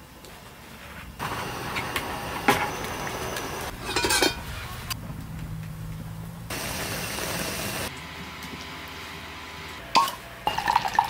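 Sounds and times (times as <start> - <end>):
metal cookware clattering: 3.7 - 4.6.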